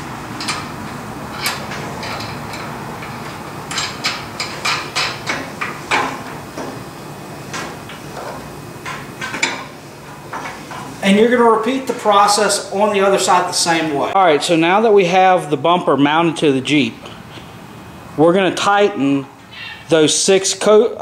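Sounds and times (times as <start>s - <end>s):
bolts clinking against steel: 0.4s - 0.7s, 1.3s - 6.4s.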